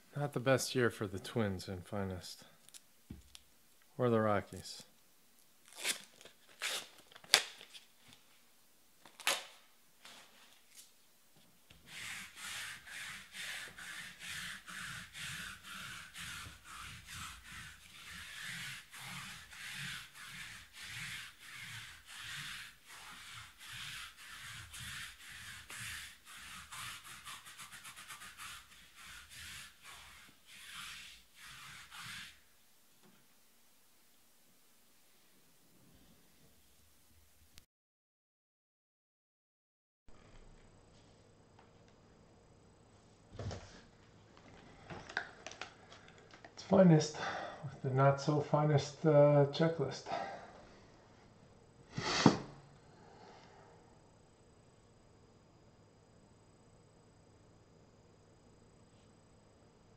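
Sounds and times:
rhythmic rubbing strokes: 11.8s - 32.4s.

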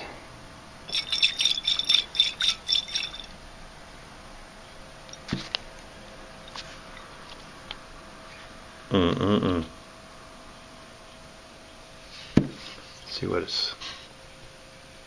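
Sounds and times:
glass jar clinking: 0.9s - 3.4s.

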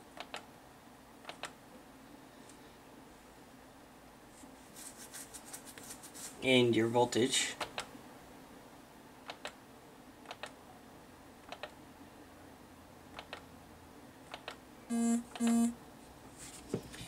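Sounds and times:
computer mouse clicking: 0.1s - 0.5s, 1.2s - 1.6s, 9.2s - 9.6s, 10.2s - 10.6s, 11.4s - 11.8s, 13.1s - 13.4s, 14.3s - 14.6s
short buzzy beeps: 14.9s - 15.8s.

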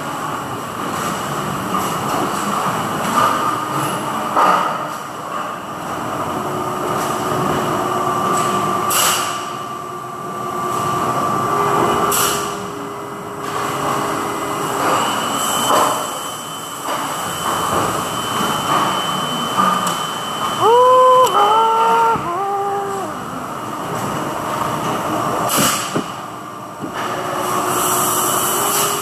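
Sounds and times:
machine mechanical hum: 0.0s - 29.0s
whining tones: 20.4s - 23.5s.

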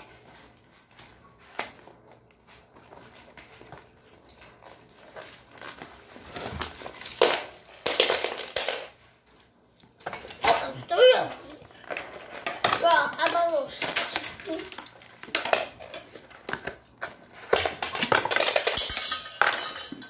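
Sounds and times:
plastic wrap crinkling: 0.0s - 7.9s
packaging rustling: 1.6s - 7.3s.

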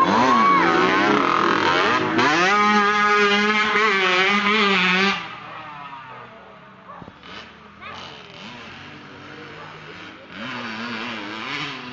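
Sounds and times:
dirt bike engine revving: 0.0s - 6.4s, 7.0s - 11.9s.

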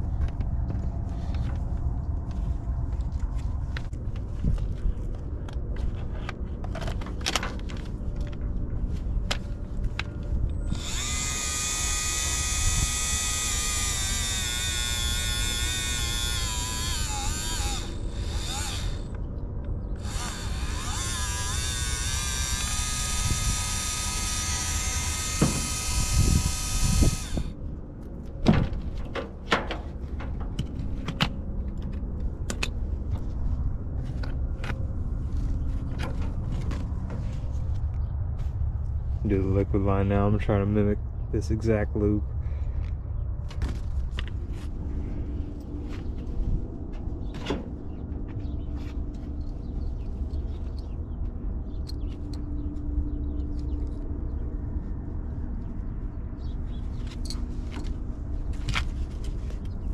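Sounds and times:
power tool motor whining: 10.0s - 19.3s, 20.0s - 27.6s.

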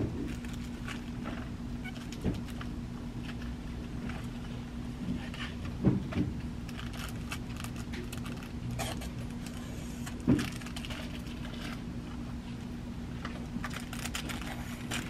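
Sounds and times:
low store hum: 0.0s - 15.0s
plastic packages clicking and rustling: 0.2s - 3.5s, 6.1s - 12.2s, 13.2s - 15.0s.

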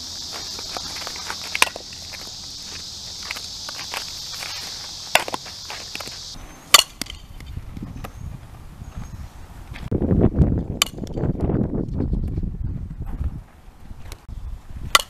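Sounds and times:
footsteps scuffing on dirt: 0.0s - 6.4s
steady high buzz: 0.0s - 7.4s
bat striking softball: 1.4s - 2.1s, 5.1s - 7.5s, 10.8s - 11.2s
wind rumble on microphone: 7.2s - 15.0s.

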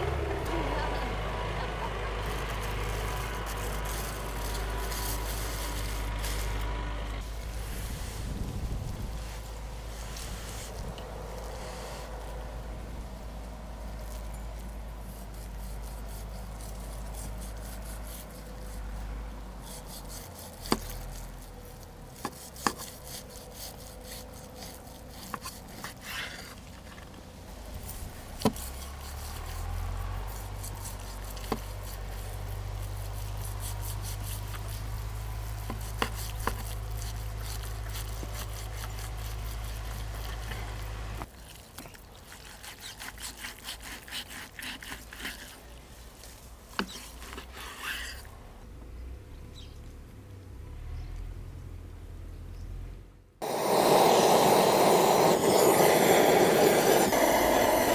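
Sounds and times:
rubbing or scraping: 2.3s - 6.8s, 7.4s - 12.4s, 19.6s - 41.2s, 42.2s - 48.3s.

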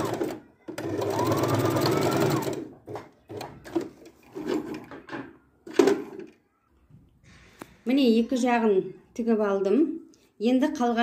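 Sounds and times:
sewing machine stitching: 0.0s - 4.9s.

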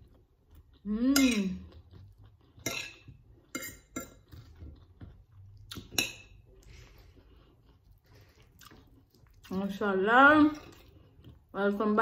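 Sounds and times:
fork and knife clinking on plate: 2.6s - 4.3s.

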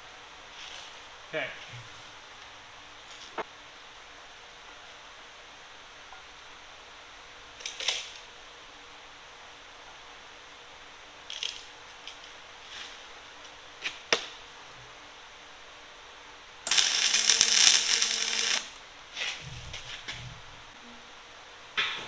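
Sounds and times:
welding arc buzzing: 16.6s - 18.8s.

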